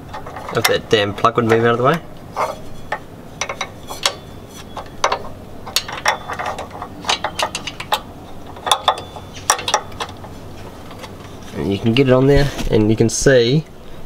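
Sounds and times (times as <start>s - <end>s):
metal wrench clicking and tapping: 2.9s - 10.2s.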